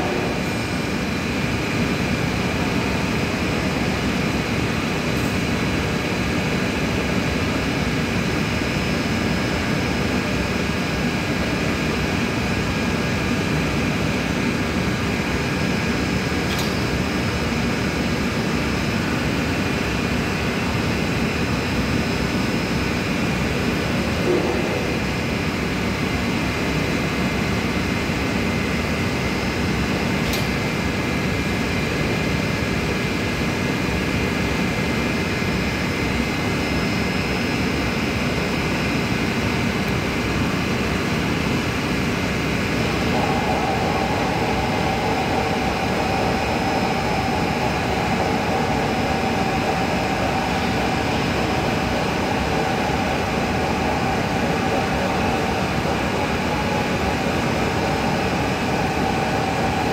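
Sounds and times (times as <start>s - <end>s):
machinery drone: 0.0s - 6.0s, 8.8s - 27.3s, 35.8s - 59.9s
higher-pitched hum: 23.8s - 26.0s, 42.2s - 59.9s.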